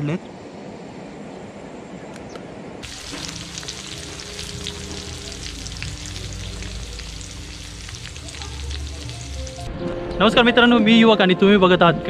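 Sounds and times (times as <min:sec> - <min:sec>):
fish frying in hot oil: 0:02.8 - 0:09.7.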